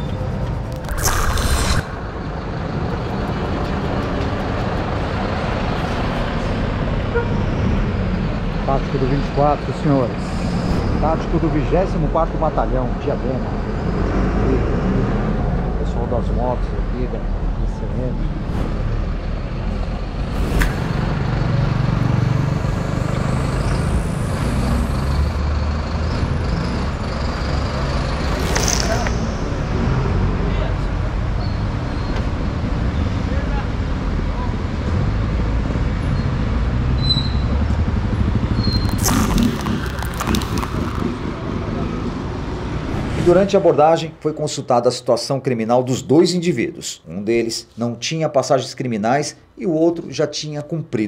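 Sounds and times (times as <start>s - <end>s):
street traffic rumble: 0.0s - 44.9s
idling vehicle engines: 2.1s - 7.1s
transition whoosh effect: 10.1s - 11.7s, 18.2s - 25.5s, 27.9s - 30.4s, 42.6s - 44.3s.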